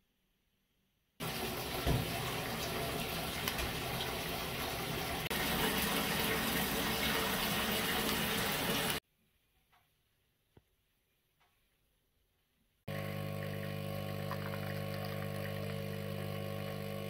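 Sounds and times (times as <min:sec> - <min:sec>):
tap water gushing into bathtub: 0:01.2 - 0:09.0.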